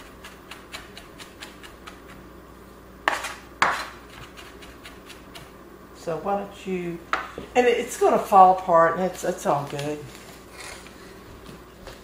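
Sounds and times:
knife chopping on cutting board: 0.0 - 2.2, 3.1 - 5.5.

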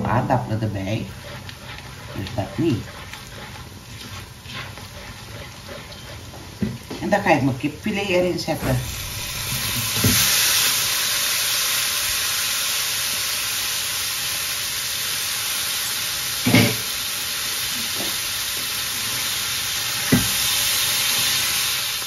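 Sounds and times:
spatula stirring in wok: 0.0 - 12.2
chicken sizzling in hot oil: 0.0 - 22.0.

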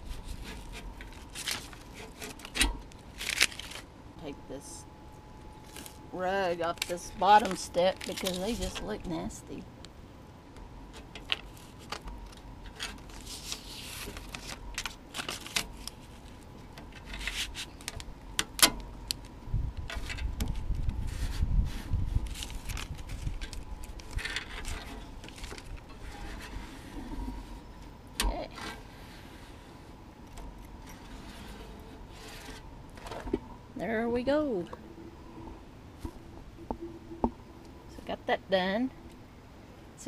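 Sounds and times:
paper crackling: 0.0 - 3.9, 5.6 - 9.1, 11.3 - 18.1, 20.1 - 27.4
scraping: 0.0 - 3.9, 19.9 - 33.5
wind rumble on microphone: 19.4 - 27.7.

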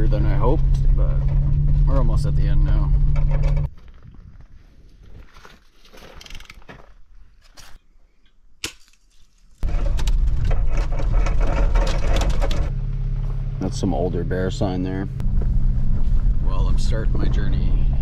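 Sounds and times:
truck driving on rough road: 0.0 - 3.7, 9.6 - 18.0.

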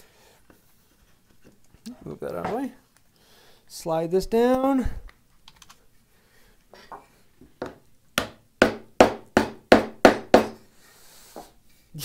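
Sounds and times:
wooden mallet knocking wood: 7.6 - 10.6.

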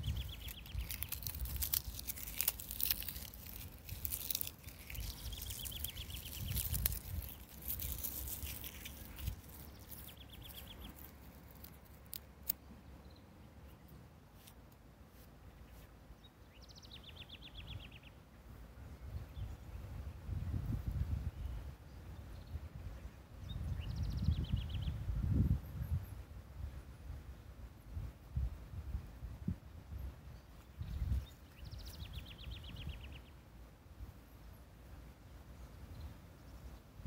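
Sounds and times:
small bird trilling: 0.0 - 11.7
wind buffeting microphone: 19.0 - 27.3, 27.9 - 33.1.

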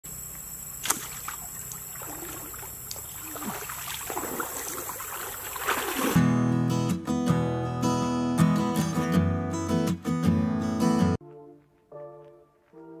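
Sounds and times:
water sloshing in a stream: 0.3 - 6.2
sharp snap: 0.8 - 1.3
acoustic guitar music: 6.1 - 11.2.

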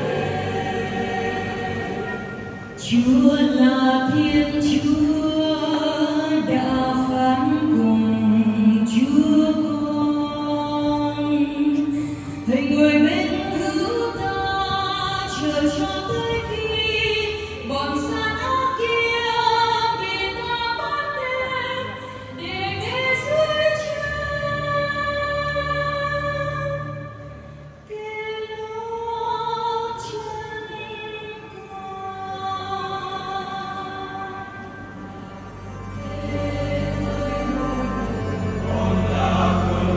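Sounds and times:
amplified choir singing a hymn: 0.0 - 9.6, 36.0 - 39.9.

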